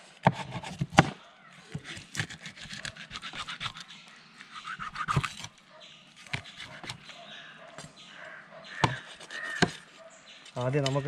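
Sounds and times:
knife sawing through fish: 0:01.7 - 0:03.9, 0:06.2 - 0:07.0, 0:08.8 - 0:10.1.

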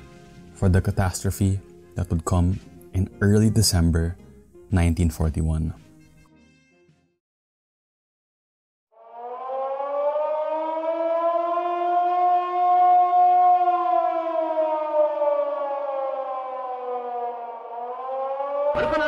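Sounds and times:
air-raid siren wailing: 0:08.9 - 0:19.0.

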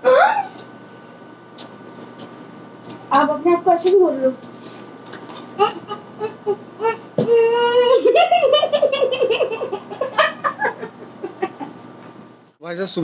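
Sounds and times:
boy laughing: 0:05.6 - 0:11.8.

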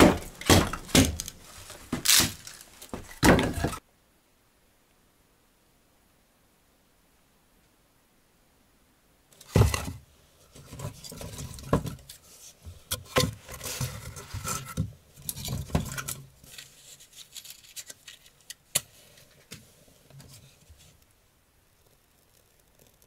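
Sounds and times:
wood knocking and clattering: 0:00.0 - 0:03.8, 0:10.6 - 0:12.1.

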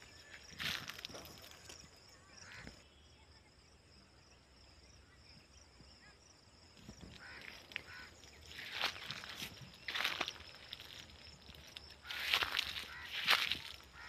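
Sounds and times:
high insect drone: 0:00.0 - 0:14.0
footsteps in dry leaves: 0:00.2 - 0:01.6, 0:07.1 - 0:14.0.

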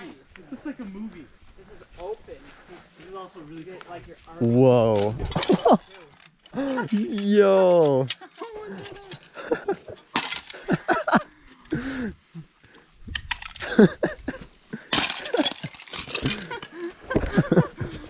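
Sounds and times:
ice pieces clinking: 0:04.9 - 0:09.3, 0:10.0 - 0:11.1, 0:13.2 - 0:13.9, 0:14.9 - 0:16.8
ice cracking: 0:14.9 - 0:16.8.

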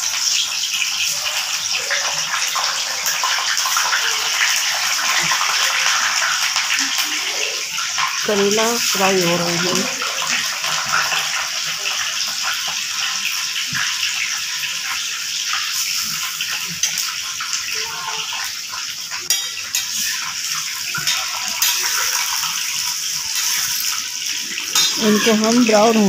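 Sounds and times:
deep-frying sizzle with crackling: 0:00.0 - 0:26.0
metal spatula clinking against pan: 0:19.3 - 0:24.1, 0:24.7 - 0:25.5.

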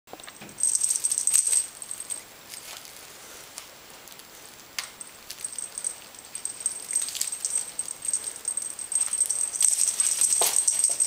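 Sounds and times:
cat toy jingling: 0:00.6 - 0:02.8, 0:05.0 - 0:11.0.

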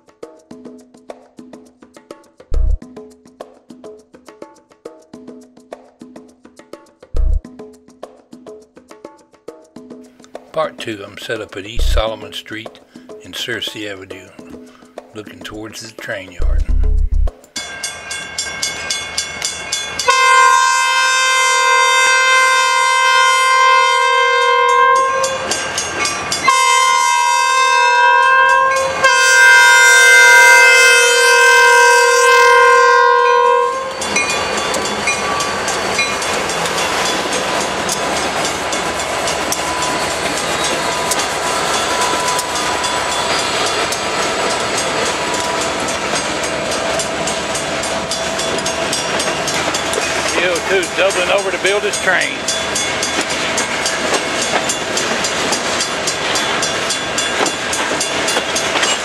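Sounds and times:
train rumble and wheel clatter: 0:11.5 - 0:12.2, 0:15.2 - 0:59.0
crossing bell ringing: 0:17.6 - 0:59.0
locomotive air horn blasts: 0:20.0 - 0:25.6, 0:26.4 - 0:34.1.

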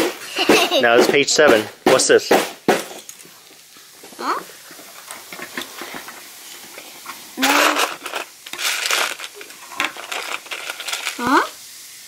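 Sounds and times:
plastic toy bricks clattering: 0:07.4 - 0:11.5
small clicks of pieces: 0:07.5 - 0:11.3.

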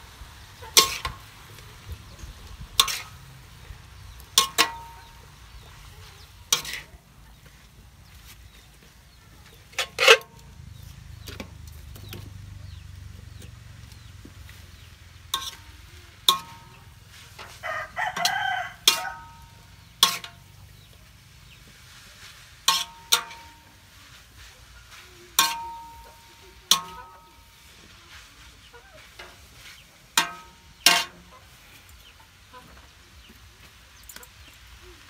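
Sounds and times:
metal spatula clanking on wok: 0:00.6 - 0:01.3, 0:01.9 - 0:03.4, 0:04.0 - 0:05.8, 0:06.4 - 0:06.9, 0:09.6 - 0:10.5, 0:14.8 - 0:20.9, 0:22.6 - 0:23.9, 0:25.4 - 0:27.8, 0:29.0 - 0:31.3
rooster crowing: 0:17.5 - 0:19.4.

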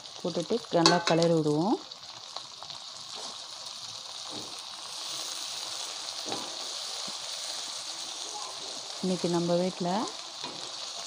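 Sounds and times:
food sizzling in hot oil: 0:00.0 - 0:11.0
spatula knocking on wok: 0:00.8 - 0:01.2.

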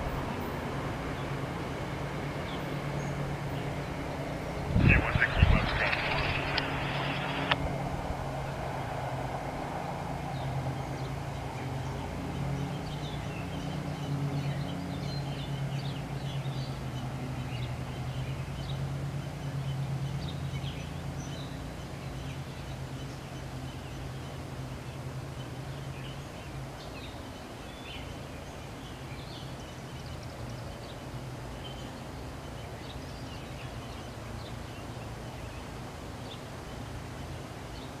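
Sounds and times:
small birds chirping: 0:00.0 - 0:07.6, 0:10.3 - 0:38.0
low steady hum: 0:00.0 - 0:38.0.

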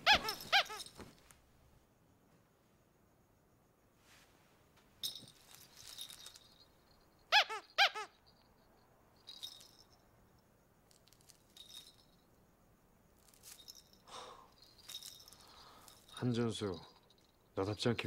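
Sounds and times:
squeaky toy squeaks: 0:00.0 - 0:01.0, 0:07.3 - 0:08.2
toy rattling: 0:00.0 - 0:01.2, 0:05.0 - 0:08.5, 0:09.2 - 0:10.0, 0:10.8 - 0:12.3, 0:13.2 - 0:17.5.

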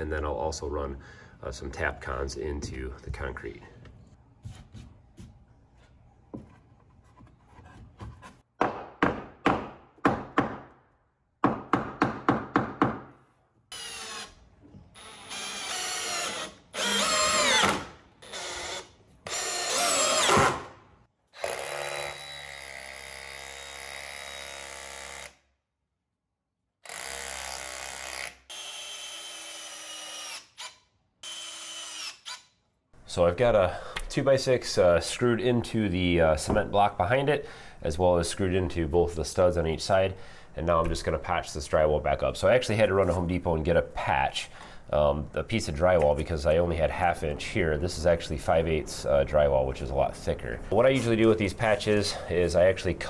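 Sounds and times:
cordless drill driving screws: 0:13.7 - 0:14.4, 0:15.0 - 0:20.6, 0:26.9 - 0:32.5.

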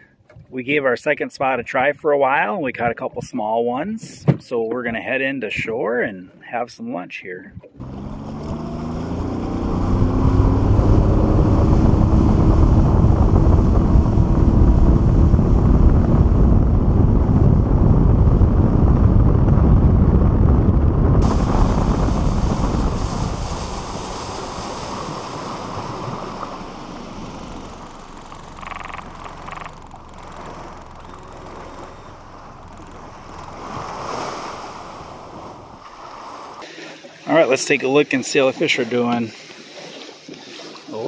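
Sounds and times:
outboard motor running: 0:07.6 - 0:18.8, 0:21.2 - 0:36.8
water rushing past hull: 0:07.6 - 0:41.0
wind buffeting microphone: 0:08.5 - 0:36.6.

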